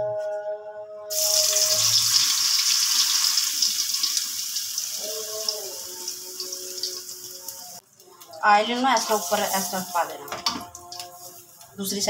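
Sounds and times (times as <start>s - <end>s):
potato patty sizzling in hot oil: 1.1s - 7.8s.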